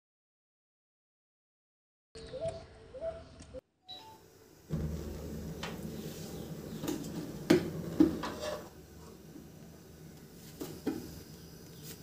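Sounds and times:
gas burner flame rushing: 4.3 - 12.0
wok knocking on metal supports: 4.7 - 8.8.

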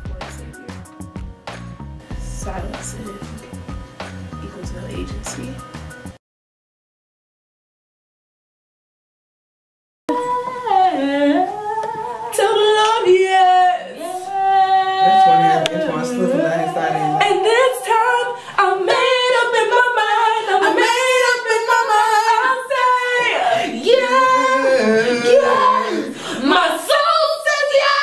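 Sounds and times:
women singing unaccompanied: 10.1 - 28.0.

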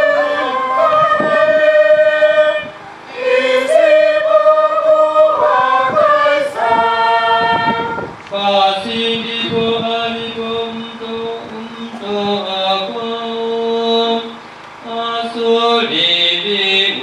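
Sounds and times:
voices singing slow chant: 0.0 - 17.0.

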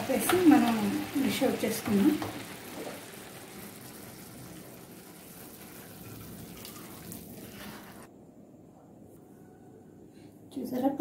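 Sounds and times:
spatula scraping pan: 7.4 - 8.1.

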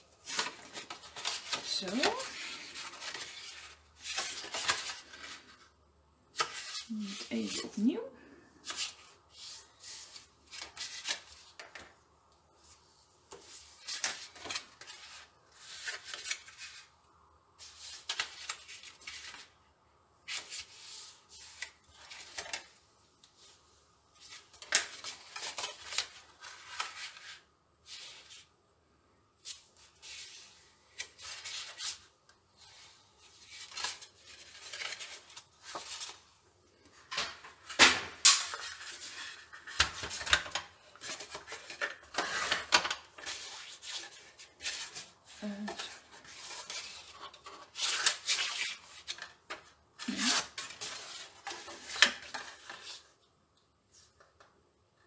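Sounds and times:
card rustling and sliding: 0.1 - 5.7, 6.3 - 7.9, 8.6 - 12.0, 12.6 - 16.9, 17.6 - 19.6, 20.2 - 23.6, 24.2 - 28.5, 29.4 - 53.2.

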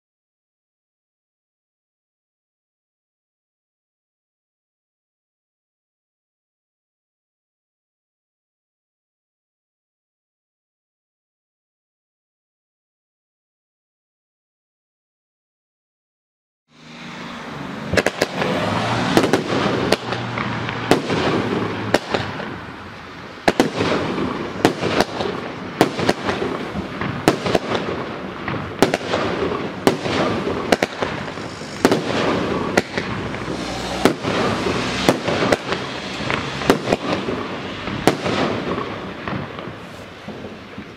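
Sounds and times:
fireworks hiss and crackle: 16.8 - 40.9
fireworks bangs: 16.9 - 40.9.

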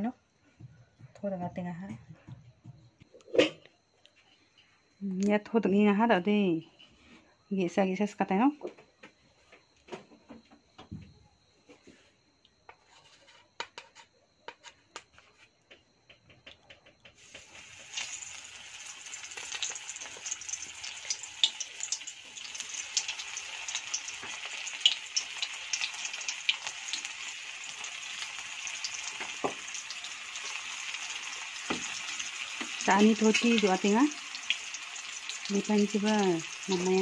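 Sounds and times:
cutlets sizzling in hot oil: 17.2 - 37.0.

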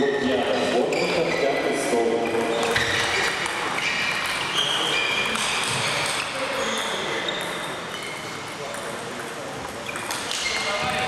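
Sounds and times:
table tennis ball ticking: 2.4 - 10.7.

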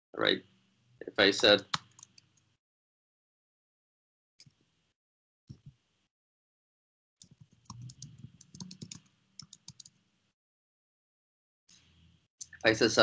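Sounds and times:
typing on computer keyboard: 7.2 - 10.0.

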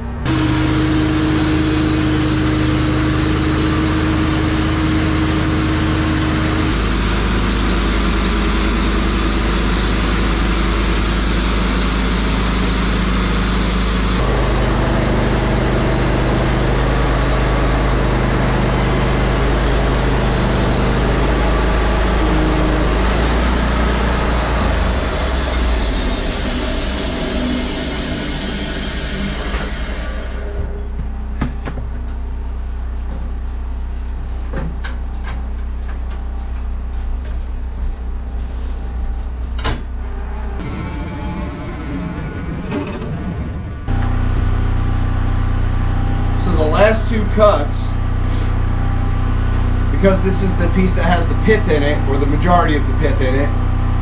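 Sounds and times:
bandsaw mill sawing log: 0.2 - 30.8, 46.2 - 48.6, 49.6 - 54.0.

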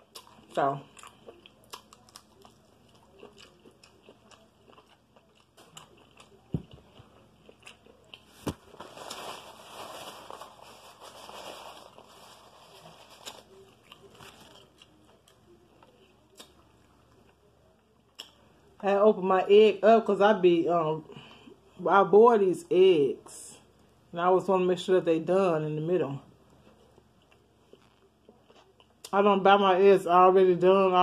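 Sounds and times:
chewing and mouth clicks: 0.0 - 8.4
paper napkin rustling: 8.2 - 14.7.

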